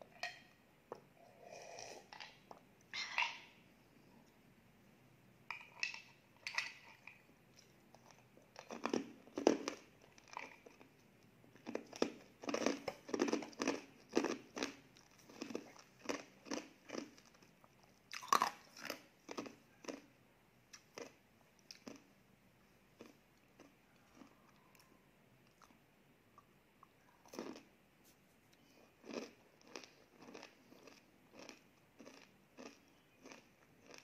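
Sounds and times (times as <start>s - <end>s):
person chewing food: 5.6s - 22.2s, 22.9s - 27.7s, 28.5s - 34.0s.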